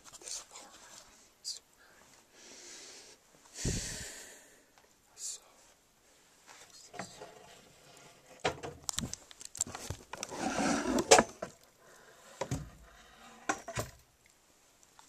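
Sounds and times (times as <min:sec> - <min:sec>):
rustling of handled things: 0:04.8 - 0:15.0.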